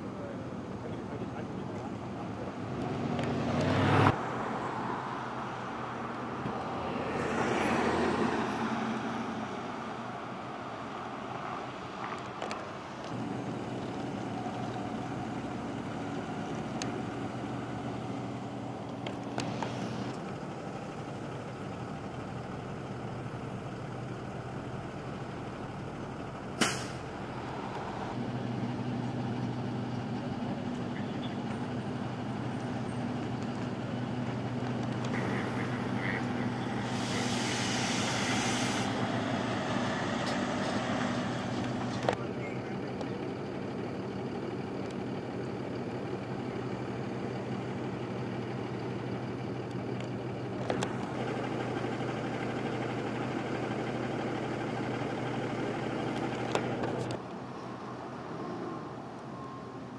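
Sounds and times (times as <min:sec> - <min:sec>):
engine idling: 0:00.0 - 0:03.4, 0:09.2 - 0:57.2
vehicle passing: 0:00.8 - 0:43.2.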